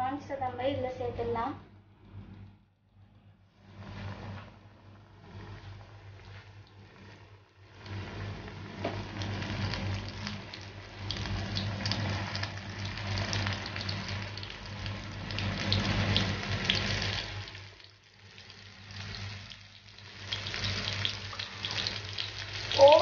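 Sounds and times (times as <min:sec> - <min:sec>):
food sizzling in hot oil: 0:05.5 - 0:23.0.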